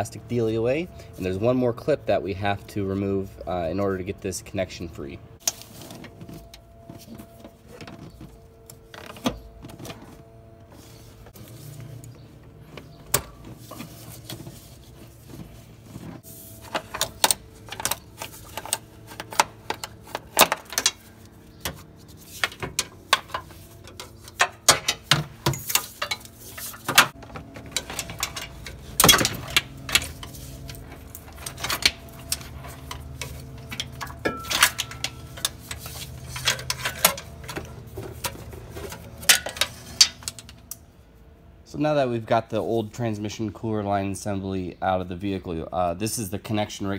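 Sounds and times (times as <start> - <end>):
faint hum: 0.0 - 46.0
metal lines clicking and rattling: 16.7 - 40.8.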